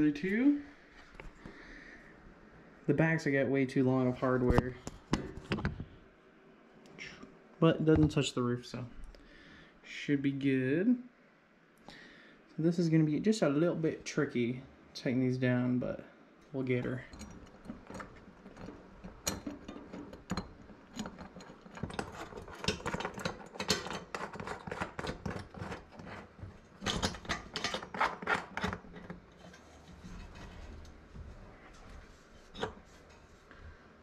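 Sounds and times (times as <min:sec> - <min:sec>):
hand tool tightening bolts clicking: 0:17.1 - 0:29.4.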